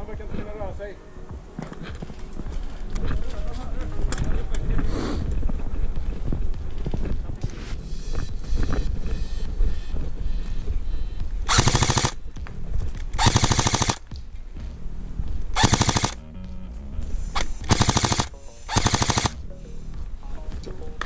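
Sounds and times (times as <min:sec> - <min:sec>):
airsoft rifle firing bursts: 0:11.5 - 0:12.2, 0:13.2 - 0:14.0, 0:15.6 - 0:16.2, 0:17.4 - 0:19.4.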